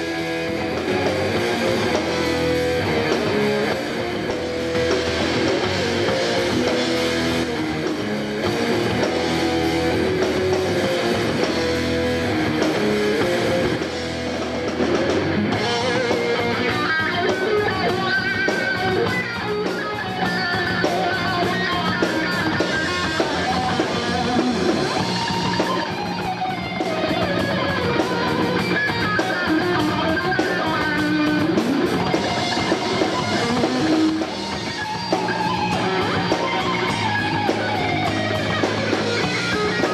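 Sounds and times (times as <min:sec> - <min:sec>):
cymbals keeping a beat: 0:00.0 - 0:39.9
rock band playing: 0:00.0 - 0:39.9.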